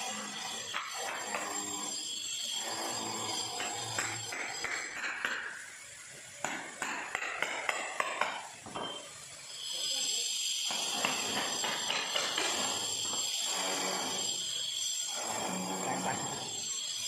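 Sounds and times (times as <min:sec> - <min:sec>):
hammer striking steel chisel: 0:00.2 - 0:02.0, 0:02.6 - 0:05.7, 0:06.4 - 0:09.1, 0:10.6 - 0:14.2
steady high hiss: 0:01.4 - 0:17.0.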